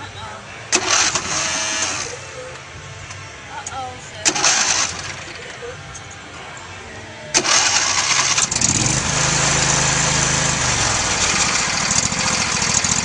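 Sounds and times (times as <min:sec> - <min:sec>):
lawn mower engine starting: 0:00.7 - 0:02.3, 0:04.2 - 0:05.7, 0:07.3 - 0:13.0.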